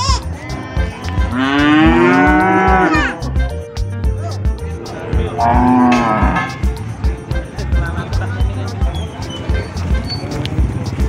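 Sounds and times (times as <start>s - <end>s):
cow mooing: 1.2s - 3.2s, 5.3s - 6.6s.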